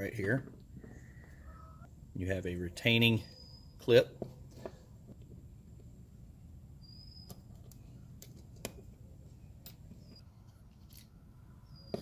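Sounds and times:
faint clicks of small reel parts: 10.5s - 11.1s.

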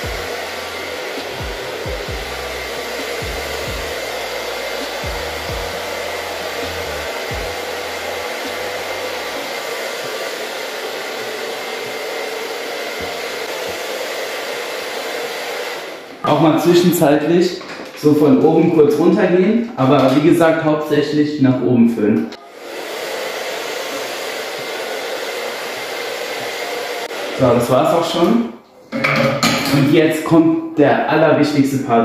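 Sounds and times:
hair dryer blowing with whine: 0.0s - 17.2s, 22.4s - 28.3s.

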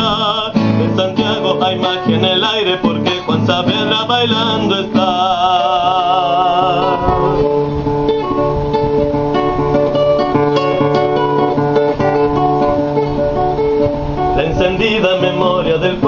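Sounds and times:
person singing with vibrato: 0.0s - 7.8s, 14.0s - 16.0s
acoustic guitar plucking: 0.0s - 16.0s.

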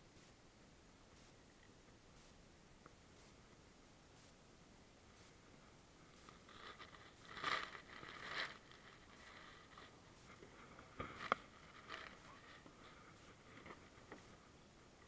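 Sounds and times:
gear rustling and scraping: 6.1s - 14.4s.

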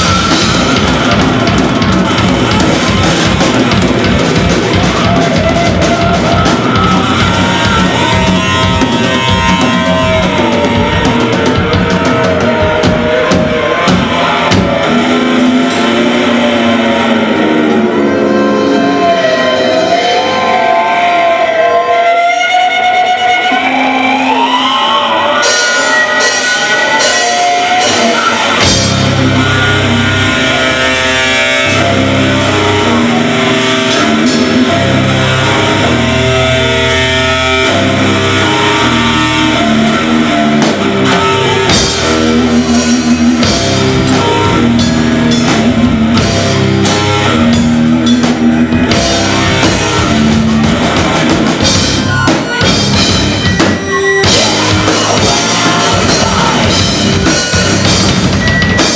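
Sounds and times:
drum kit: 0.0s - 21.8s, 25.4s - 58.9s
bass guitar: 0.0s - 58.9s
distorted electric guitar: 0.0s - 58.9s
cymbals: 21.6s - 58.9s.

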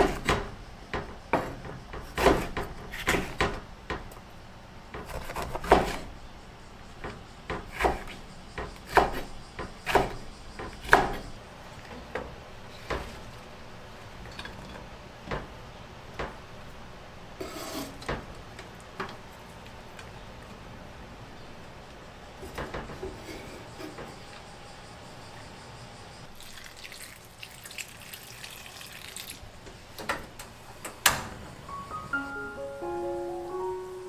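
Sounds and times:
knife chopping on wooden board: 1.4s - 3.6s, 5.0s - 6.0s, 7.5s - 9.3s, 9.9s - 11.2s.

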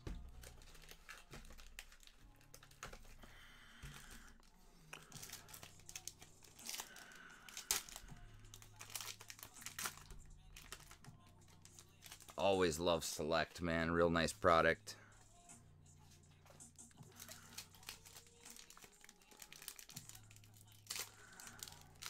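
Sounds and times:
foil wrappers crinkling and tearing: 0.0s - 12.6s, 17.0s - 22.0s.

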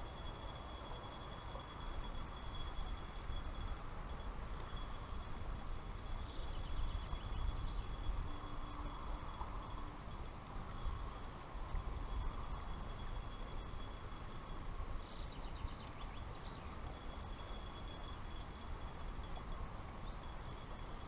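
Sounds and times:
bird chirping: 6.2s - 8.2s, 14.9s - 18.2s.

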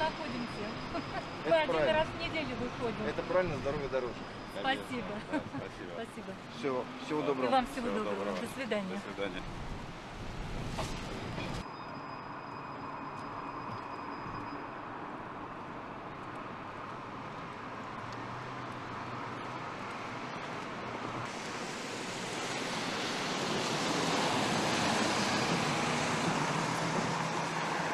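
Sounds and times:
passing cars hissing: 21.2s - 27.9s.

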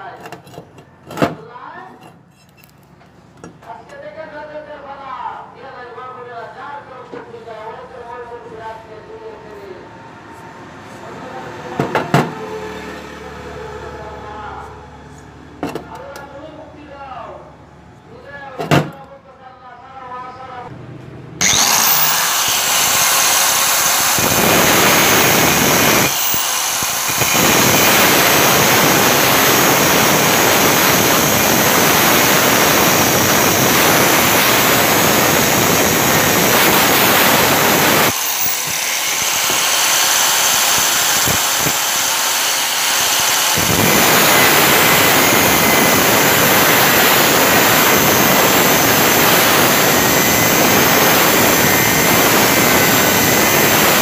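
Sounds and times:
angle grinder cutting steel: 21.4s - 54.0s.

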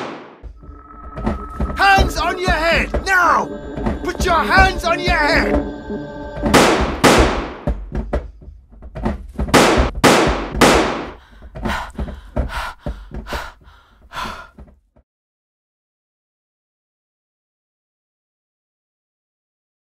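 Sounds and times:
heavy sharp bangs: 0.0s - 0.4s, 6.5s - 7.7s, 9.5s - 11.2s.

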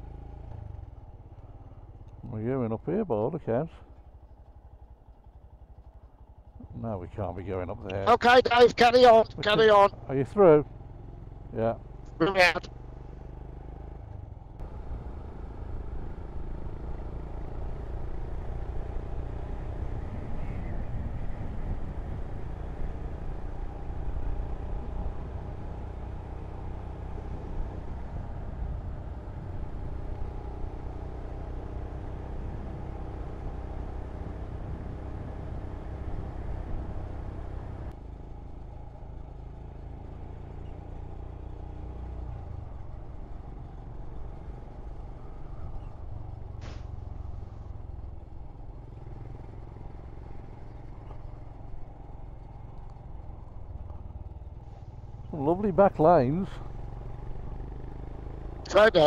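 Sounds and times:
motorcycle engine running: 0.0s - 59.0s
wind noise on microphone: 20.1s - 22.4s.

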